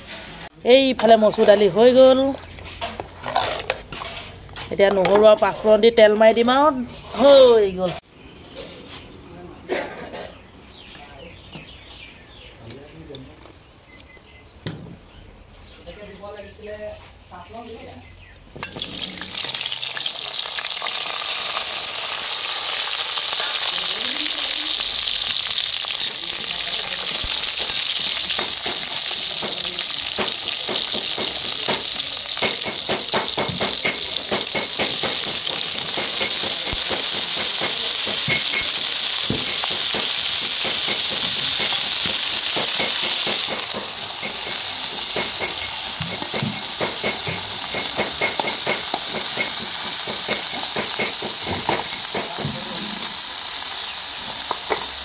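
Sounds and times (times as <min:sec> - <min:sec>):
oil spattering crackle: 0:18.6 - 0:55.0
vegetables sizzling in hot oil: 0:18.6 - 0:55.0.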